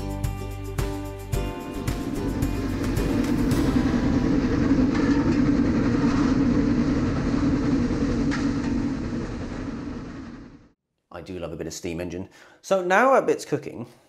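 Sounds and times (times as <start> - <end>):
steam locomotive rumbling on rails: 1.3 - 10.8.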